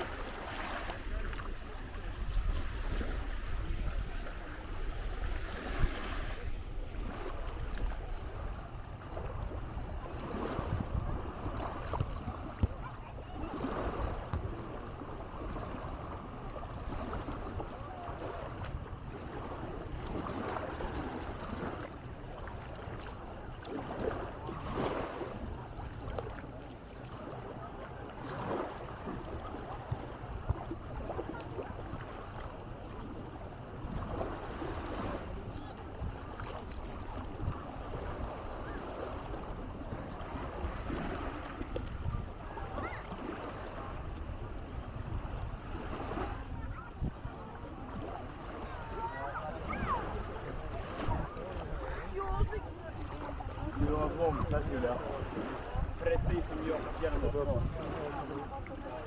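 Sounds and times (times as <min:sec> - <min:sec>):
people's voices: 0:00.0 - 0:08.0, 0:46.5 - 0:59.0
small waves washing on sand: 0:00.0 - 0:59.0
wind rumble on microphone: 0:00.0 - 0:59.0.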